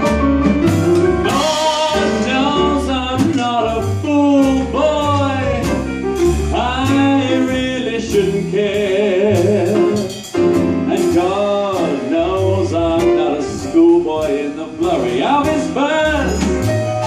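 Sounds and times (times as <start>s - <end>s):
instrumental accompaniment: 0.0s - 17.0s
person singing with vibrato: 1.3s - 10.1s.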